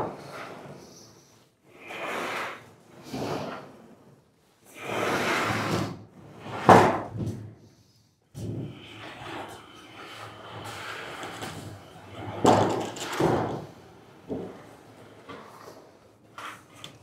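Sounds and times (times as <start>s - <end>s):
rollers running along sheet metal: 4.7s - 7.2s, 8.3s - 17.0s.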